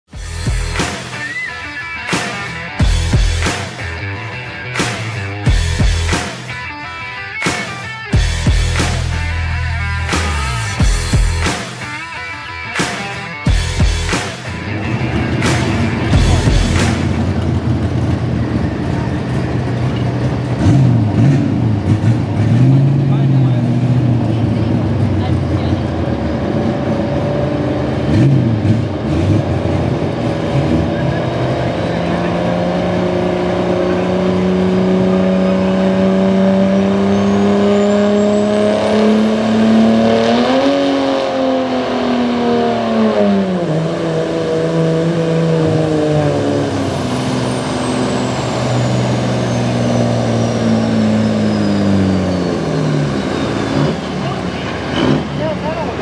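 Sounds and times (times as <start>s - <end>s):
diesel engine revving under load: 13.4s - 56.0s.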